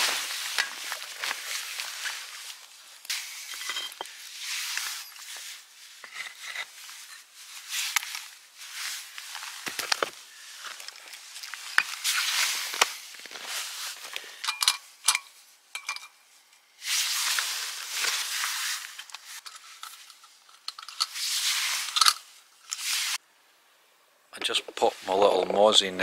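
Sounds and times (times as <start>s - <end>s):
rustling: 0.0s - 14.4s, 16.8s - 23.2s
metal clicks and clinks: 14.4s - 16.2s, 19.4s - 21.2s.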